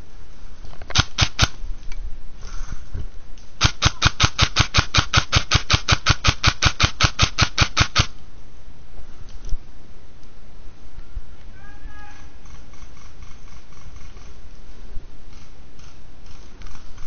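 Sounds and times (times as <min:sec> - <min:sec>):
airsoft gun rapid firing: 0:00.9 - 0:01.6, 0:03.6 - 0:08.2.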